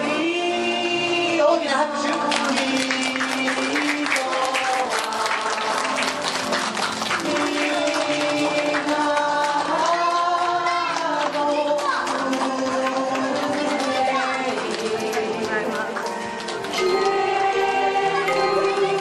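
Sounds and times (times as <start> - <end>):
music with singing: 0.0 - 19.0
clapping: 2.3 - 17.2.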